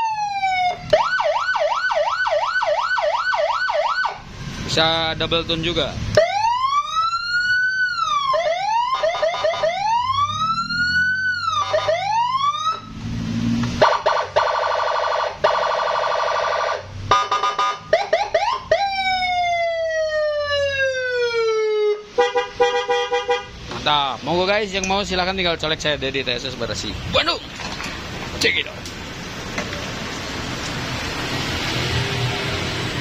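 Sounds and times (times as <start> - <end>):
electronic siren wailing and yelping: 0.0 - 4.2, 6.2 - 13.0, 13.8 - 22.2.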